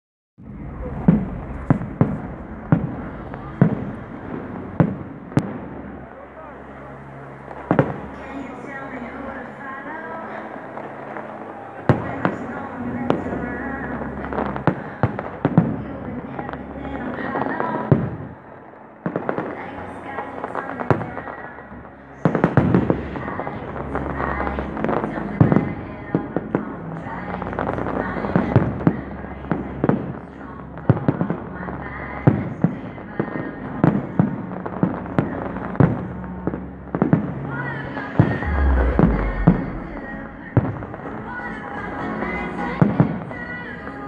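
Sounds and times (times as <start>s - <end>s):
continuous background noise: 0.4s - 44.0s
fireworks banging: 0.5s - 6.0s.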